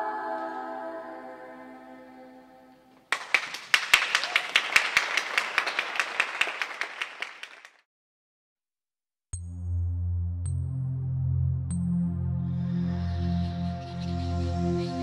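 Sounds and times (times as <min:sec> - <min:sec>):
choral music: 0:00.0 - 0:03.5, 0:10.0 - 0:15.0
audience clapping: 0:03.0 - 0:07.9
electronic music: 0:09.4 - 0:15.0.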